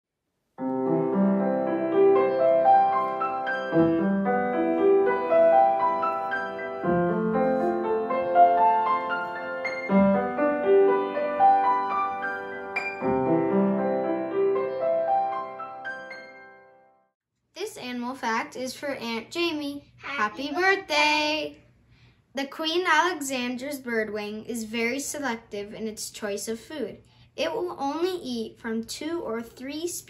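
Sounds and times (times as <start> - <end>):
gentle solo piano melody: 0.6 - 16.5.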